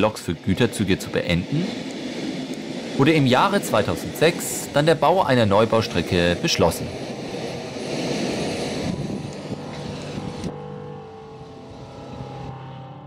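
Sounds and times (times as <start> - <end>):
train wheels rumbling on rail: 0.0 - 12.5
high hiss: 0.0 - 12.6
locomotive low hum: 0.0 - 13.0.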